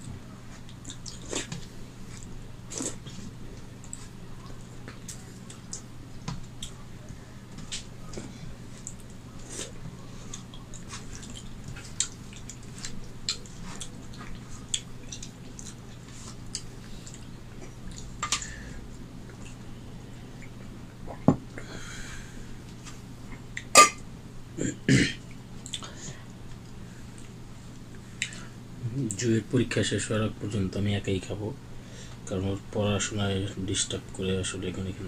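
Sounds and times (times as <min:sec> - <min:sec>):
wet chewing and mouth smacks: 0:00.6 - 0:03.2, 0:10.3 - 0:18.5, 0:25.6 - 0:25.9.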